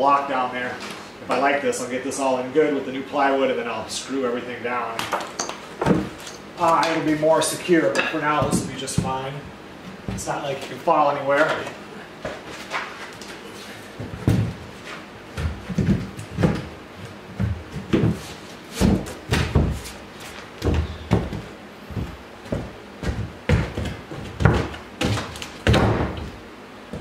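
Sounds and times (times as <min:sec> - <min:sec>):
board thudding on concrete floor: 0:22.5 - 0:26.4.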